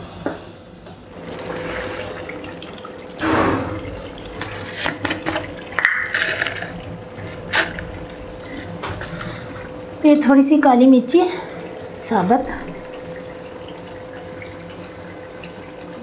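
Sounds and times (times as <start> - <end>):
sauce bubbling and sizzling: 0.0 - 10.6.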